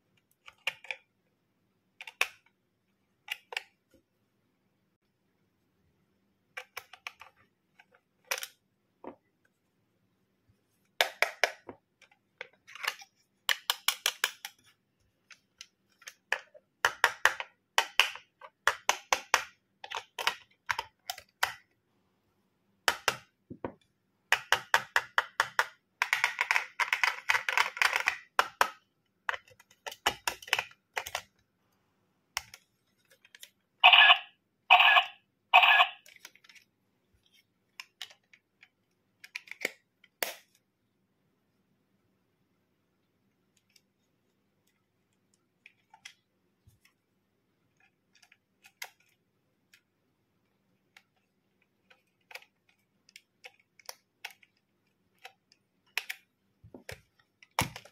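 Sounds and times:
plastic clicks and taps: 2.0 - 2.6, 6.5 - 9.3, 10.9 - 21.8, 22.8 - 31.4, 32.3 - 34.1, 35.6 - 40.6, 50.9 - 57.9
plastic snaps: 37.7 - 40.6.

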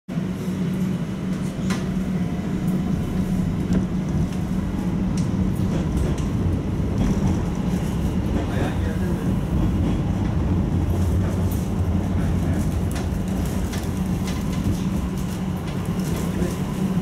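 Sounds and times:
tram humming along rails: 0.1 - 17.0.

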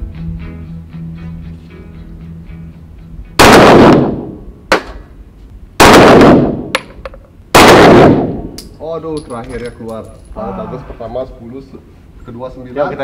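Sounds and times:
pistol shots with echo: 3.4 - 5.0, 5.8 - 8.6.

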